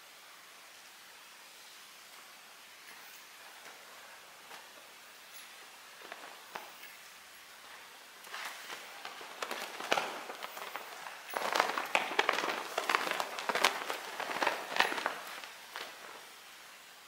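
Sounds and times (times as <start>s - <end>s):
fabric flags swishing and snapping: 3.2s - 16.6s.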